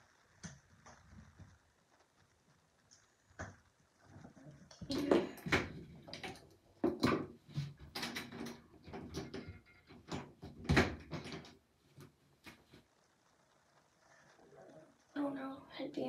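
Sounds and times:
rustling: 11.0 - 15.2.

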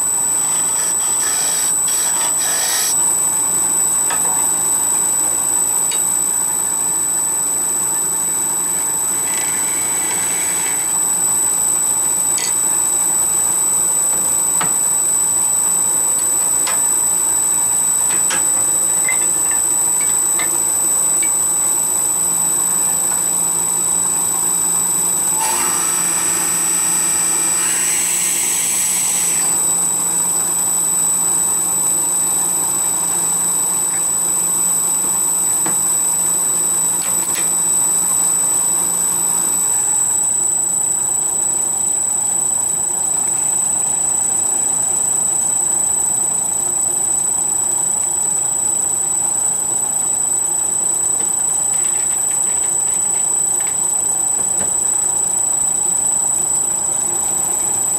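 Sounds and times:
wood lathe whining: 0.0 - 13.2, 18.1 - 34.2
drill bit boring into wood: 0.0 - 40.3.

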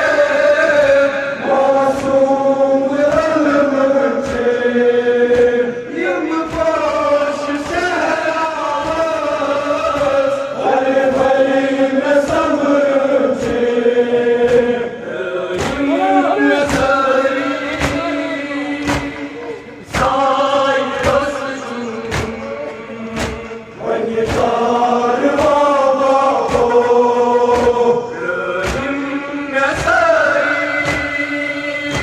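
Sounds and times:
men chanting a lament: 0.0 - 32.0
chest beating slaps: 15.5 - 16.0, 17.7 - 20.2, 22.0 - 23.6, 28.6 - 29.0.

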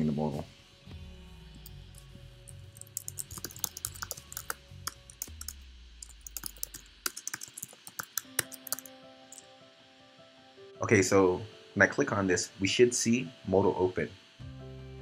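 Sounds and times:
keyboard key clicks: 2.8 - 8.9.

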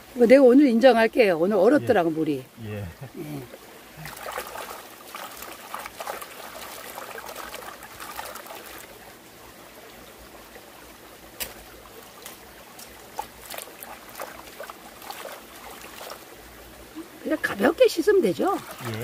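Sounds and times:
stream trickling: 0.0 - 19.0
water sloshing and dripping: 3.4 - 19.0
sharp splashes and clicks: 4.0 - 8.9, 11.4 - 16.3, 18.3 - 19.0.

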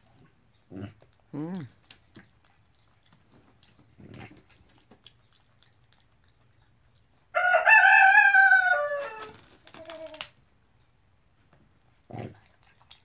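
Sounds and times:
rooster crowing: 7.3 - 9.4.

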